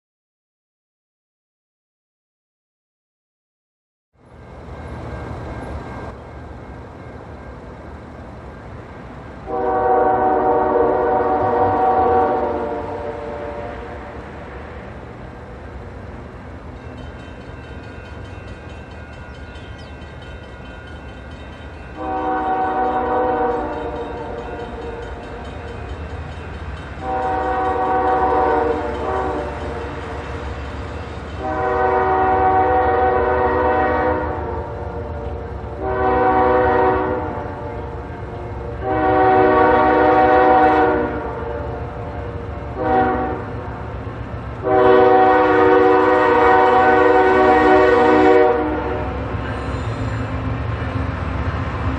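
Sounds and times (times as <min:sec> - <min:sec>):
train rumbling: 0:04.2 - 0:51.9
locomotive air horn blasts: 0:09.5 - 0:14.3, 0:22.0 - 0:25.0, 0:27.0 - 0:30.0, 0:31.4 - 0:43.7, 0:44.6 - 0:50.2.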